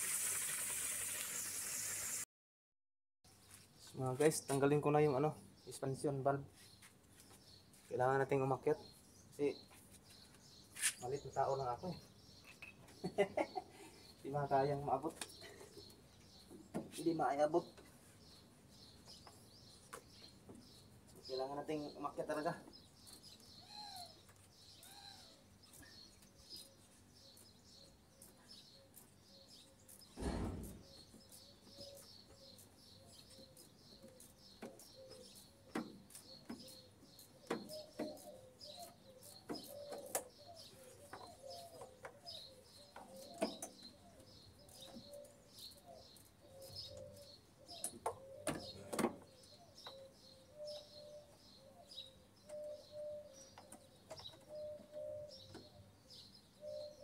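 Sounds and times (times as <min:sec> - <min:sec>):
birds chirping: 0:03.3 - 0:57.0
dull thump: 0:30.2 - 0:30.9.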